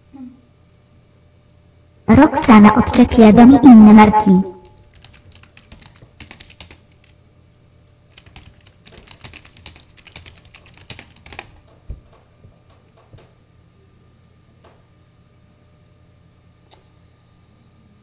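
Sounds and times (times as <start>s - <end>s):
computer keyboard typing: 4.5s - 7.2s, 8.0s - 13.4s.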